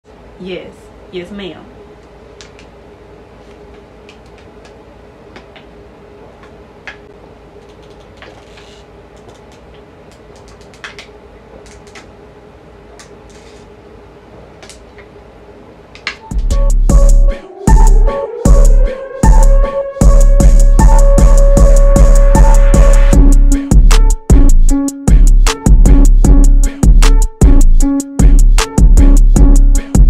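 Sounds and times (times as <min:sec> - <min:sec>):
low steady hum: 0:00.1 - 0:23.8.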